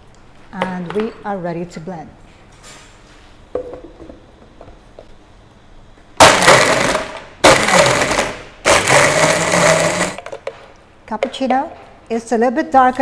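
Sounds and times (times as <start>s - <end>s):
blender crushing ice: 6.2s - 10.4s.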